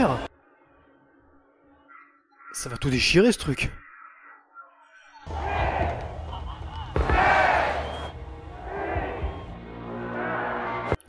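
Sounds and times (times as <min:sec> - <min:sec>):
crowd shouting and cheering: 0:05.2 - 0:11.0
film music: 0:05.2 - 0:11.0.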